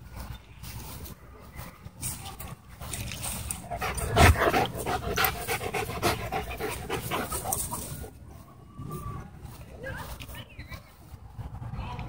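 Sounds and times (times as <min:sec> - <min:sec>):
dogs panting: 0:02.9 - 0:08.4.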